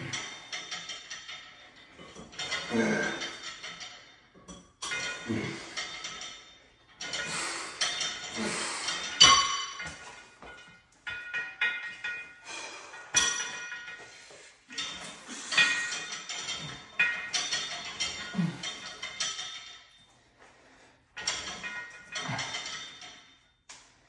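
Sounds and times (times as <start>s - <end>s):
ringing metallic clinks: 4.8s - 20.1s.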